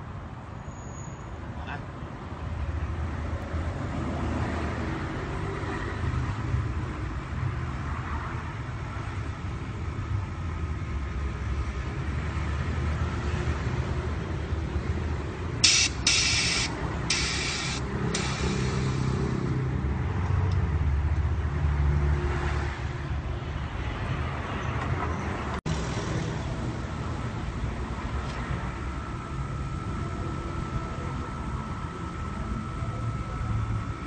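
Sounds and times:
hydraulic hissing bursts: 0:15.6 - 0:19.5
low mechanical hum: 0:25.8 - 0:34.0.

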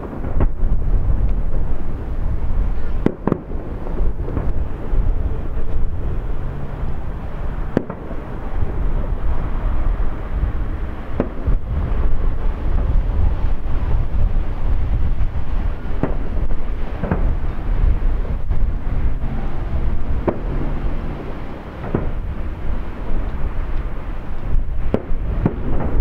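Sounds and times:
continuous low rumble: 0:00.0 - 0:26.0
fireworks shells bursting: 0:01.5 - 0:05.8, 0:15.2 - 0:26.0.

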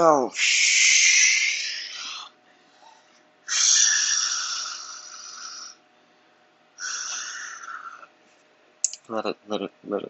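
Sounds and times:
person exhaling forcefully: 0:03.5 - 0:05.7.

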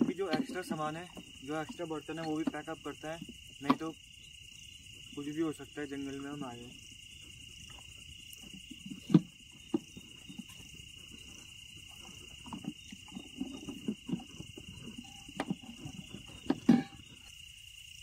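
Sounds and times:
crickets chirring: 0:00.0 - 0:18.0
cooking pots clattering: 0:15.0 - 0:17.2.

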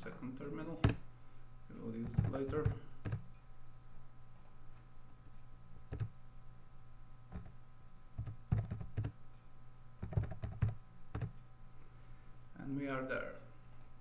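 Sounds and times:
computer keyboard typing: 0:02.0 - 0:03.3, 0:05.9 - 0:06.1, 0:07.3 - 0:07.6, 0:08.2 - 0:09.2, 0:10.0 - 0:11.4.

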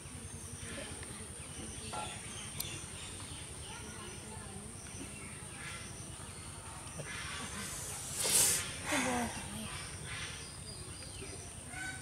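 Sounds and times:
short sharp hiss: 0:07.6 - 0:08.8.

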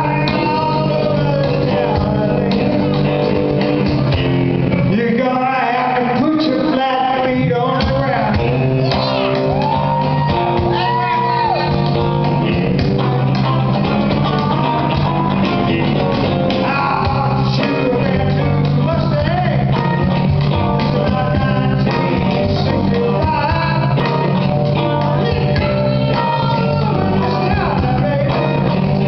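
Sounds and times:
man singing: 0:00.0 - 0:03.3, 0:04.7 - 0:09.5, 0:10.6 - 0:29.0
percussion beat: 0:07.4 - 0:29.0.

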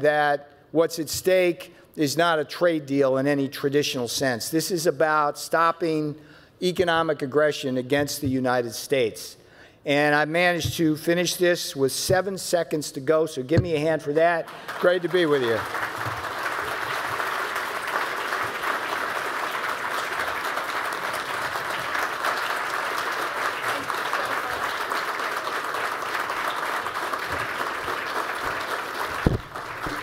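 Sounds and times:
audience applauding: 0:14.5 - 0:30.0.

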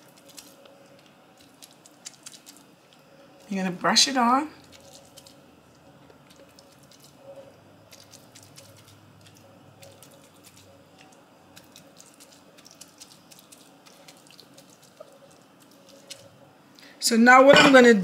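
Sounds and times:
pastry brush dabbing wet marinade: 0:00.0 - 0:16.7
brush ticking on fish and bowl: 0:07.8 - 0:16.4.

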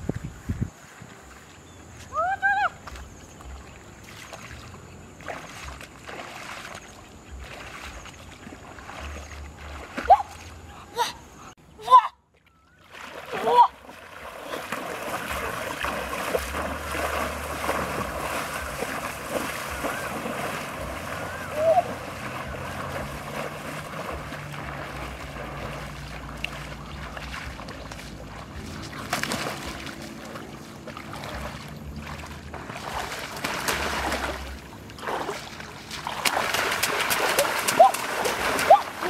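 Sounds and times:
wind rumble on microphone: 0:00.0 - 0:06.2
wading through water splashing: 0:00.7 - 0:11.6, 0:12.3 - 0:39.0.

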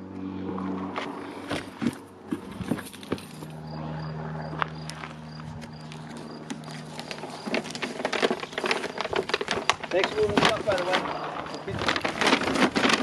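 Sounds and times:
steady low hum: 0:00.0 - 0:09.9
tape being peeled off: 0:04.8 - 0:13.0.

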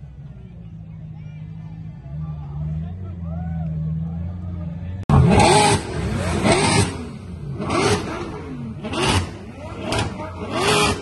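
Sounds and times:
car engine revving: 0:03.8 - 0:11.0.

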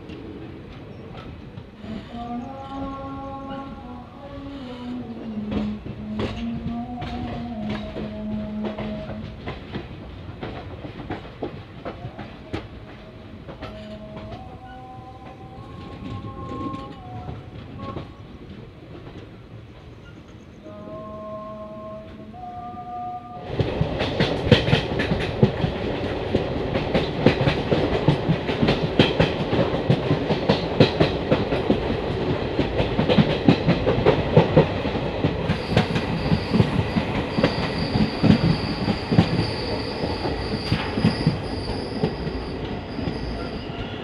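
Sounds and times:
train wheels rumbling on rail: 0:00.0 - 0:22.5, 0:23.3 - 0:44.0
wheels clicking over rail joints: 0:04.8 - 0:14.4, 0:23.5 - 0:39.5
high-pitched squeal: 0:35.5 - 0:44.0.

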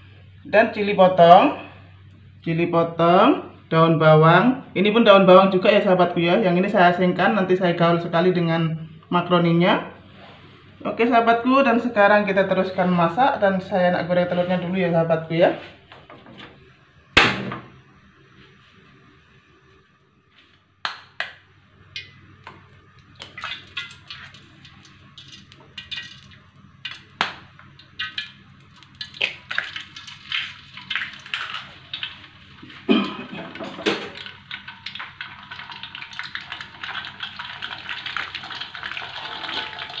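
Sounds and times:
eggs sizzling in hot oil: 0:21.9 - 0:40.0.

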